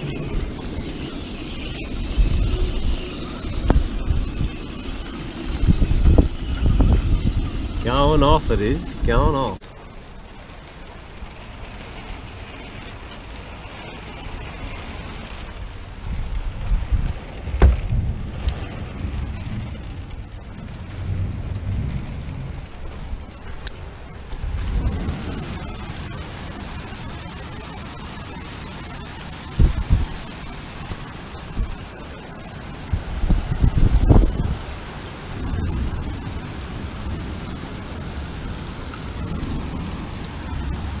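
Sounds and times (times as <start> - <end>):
rain on boat hull: 0.0 - 41.0
wind: 0.0 - 41.0
uneven low rumble: 9.9 - 41.0.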